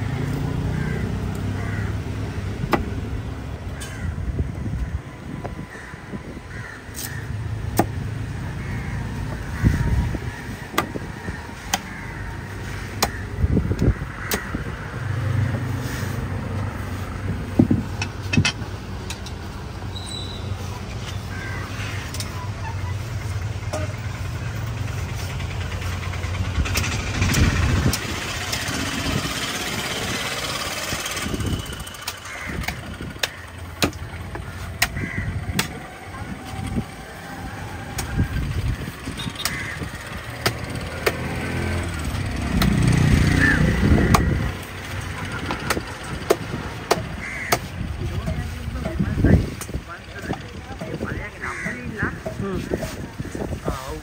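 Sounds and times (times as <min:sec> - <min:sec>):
vehicle engines running: 0:00.0 - 0:54.0
machete chopping on wooden block: 0:32.6 - 0:35.8, 0:40.4 - 0:41.3, 0:45.5 - 0:47.7.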